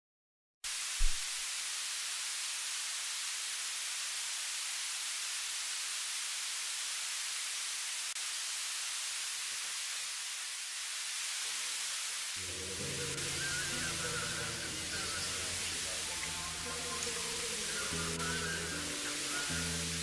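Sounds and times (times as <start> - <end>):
steady high hiss: 0.7 - 20.0
low thump: 1.0 - 1.4.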